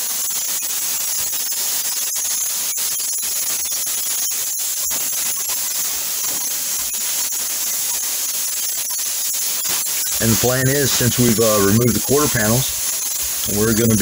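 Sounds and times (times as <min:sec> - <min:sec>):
plasma cutter hissing: 0:09.6 - 0:14.0.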